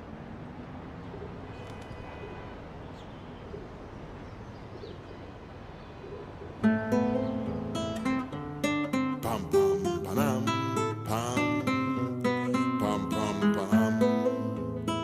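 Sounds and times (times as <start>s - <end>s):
outdoor background hum: 0.0s - 15.0s
acoustic guitar strumming: 6.6s - 15.0s.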